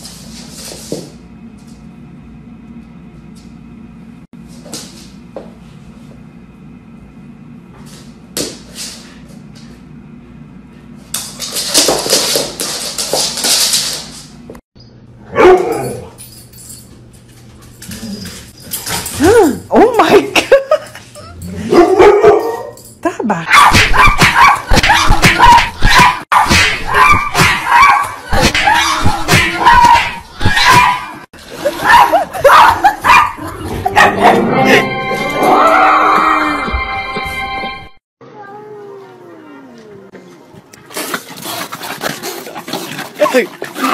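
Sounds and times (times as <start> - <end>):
paws scrabbling on wooden floor: 11.2 - 14.6
cat and dogs snarling: 39.5 - 43.9.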